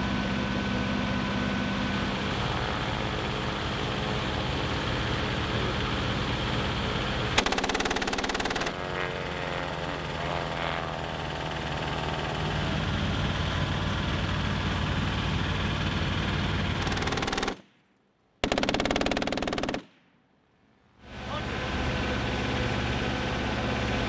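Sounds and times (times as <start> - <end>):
vehicle engine idling: 0.0 - 17.7, 20.8 - 24.0
machine gun bursts: 7.4 - 8.8, 16.8 - 17.6, 18.4 - 19.9.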